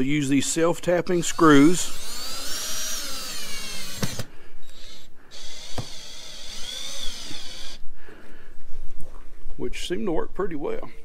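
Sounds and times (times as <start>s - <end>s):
cordless drill motor whining: 1.2s - 7.8s.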